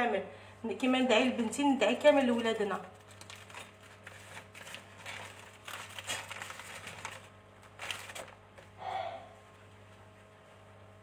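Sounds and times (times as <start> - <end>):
hands crinkling wrapping: 2.4 - 8.8.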